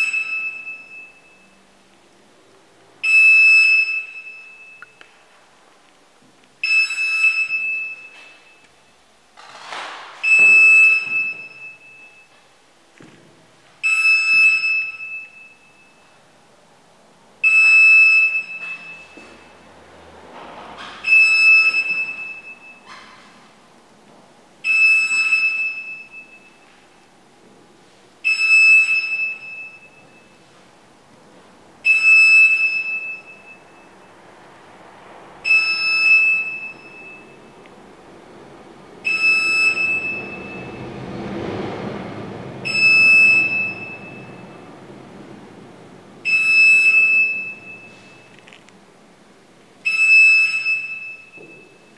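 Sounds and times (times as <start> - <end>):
electronic alarm beep: 0.0 - 1.6, 3.0 - 5.0, 6.6 - 8.7, 10.2 - 12.4, 13.8 - 16.1, 17.4 - 19.6, 21.0 - 22.9, 24.6 - 26.8, 28.3 - 30.4, 31.8 - 34.1, 35.4 - 37.6, 39.0 - 40.8, 42.6 - 44.6, 46.2 - 48.4, 49.8 - 51.9.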